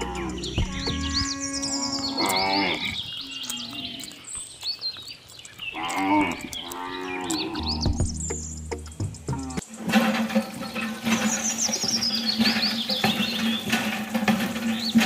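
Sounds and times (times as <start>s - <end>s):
cattle mooing: 0.0s - 4.1s, 5.8s - 8.0s
birds chirping: 0.0s - 15.0s.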